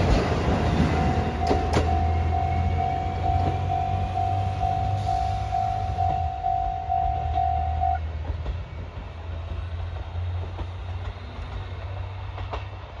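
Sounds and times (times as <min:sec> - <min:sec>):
diesel railcar engine rumble: 0:00.0 - 0:13.0
level crossing warning bell: 0:00.8 - 0:08.0.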